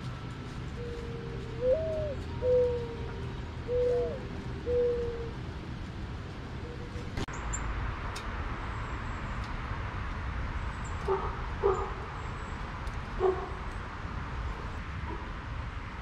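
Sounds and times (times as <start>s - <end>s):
outdoor background noise: 0.0s - 16.0s
dog barking: 11.1s - 12.0s, 13.2s - 13.6s.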